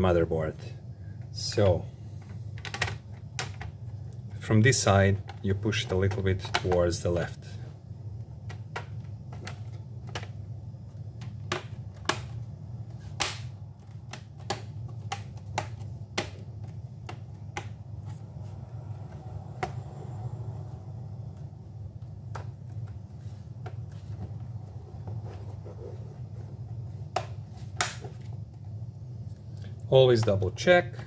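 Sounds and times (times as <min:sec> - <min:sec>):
steady low hum: 0:00.0 - 0:31.0
plastic clips snapping into place: 0:13.1 - 0:17.8, 0:27.1 - 0:28.3.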